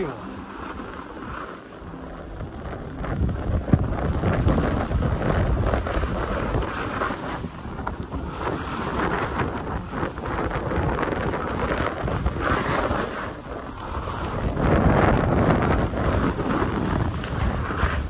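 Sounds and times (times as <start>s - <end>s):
skis sliding on snow: 0.0s - 18.0s
wind buffeting microphone: 0.0s - 18.0s.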